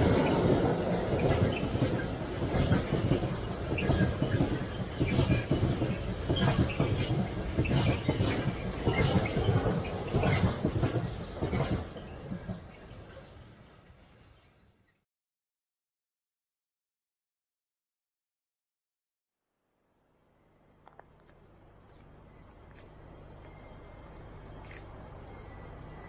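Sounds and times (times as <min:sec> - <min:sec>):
train wheels clacking over rail joints: 0:00.0 - 0:13.3
freight train rumble: 0:00.0 - 0:14.9, 0:21.6 - 0:26.0.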